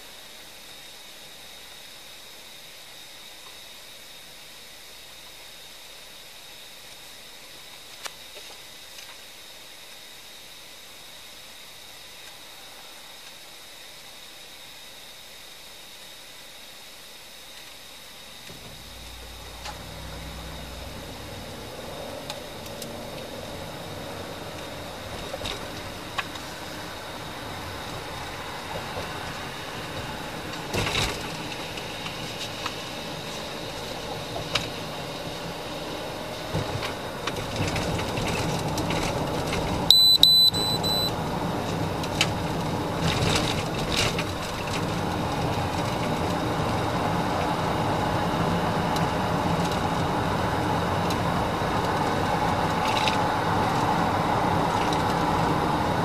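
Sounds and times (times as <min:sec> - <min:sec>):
road and engine noise in car: 0:17.6 - 0:56.0
high electronic beep: 0:39.9 - 0:41.1.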